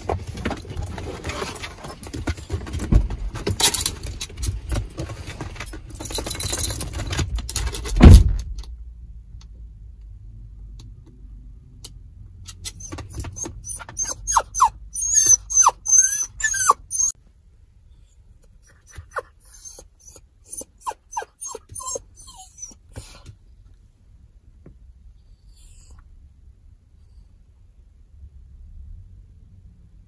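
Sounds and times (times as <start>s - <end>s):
dog shuffling and jingling: 0.2s - 7.9s
dog whimpering: 12.8s - 17.2s, 18.3s - 23.2s.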